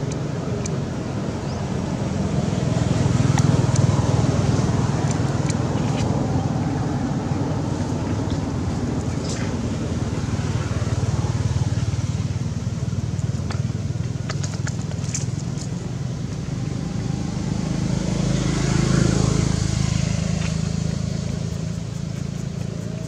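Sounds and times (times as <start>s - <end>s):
motor engine humming: 19.4s - 23.0s.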